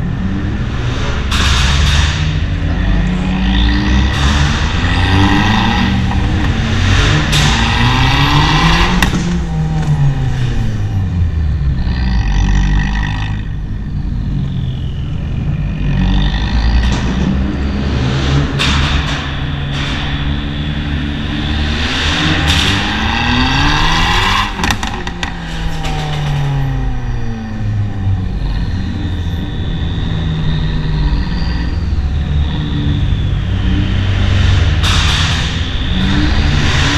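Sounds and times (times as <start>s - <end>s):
car accelerating in a tunnel: 0.0s - 36.9s
exhaust pops and crackles: 18.4s - 26.8s.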